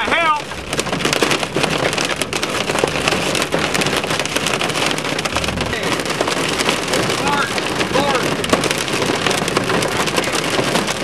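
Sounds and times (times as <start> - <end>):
heavy rain on car roof: 0.0 - 11.0.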